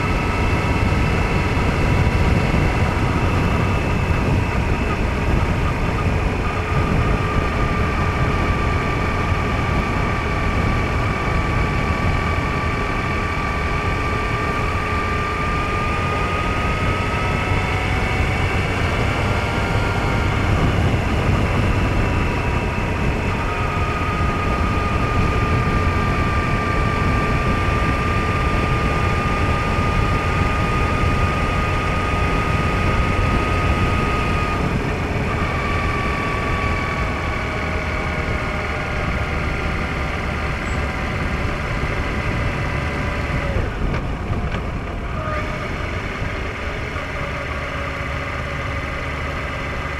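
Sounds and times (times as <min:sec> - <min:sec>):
motorcycle engine drone: 0:00.0 - 0:49.9
wind rumble on microphone: 0:00.0 - 0:49.9.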